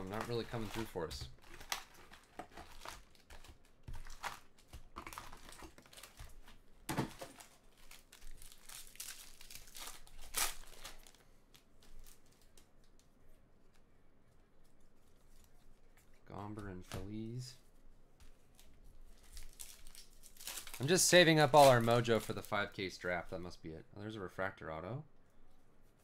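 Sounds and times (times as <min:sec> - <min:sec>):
wrapper tearing: 0:00.0 - 0:12.7, 0:19.1 - 0:22.8
card wrappers crinkling: 0:00.0 - 0:13.1, 0:18.4 - 0:23.2.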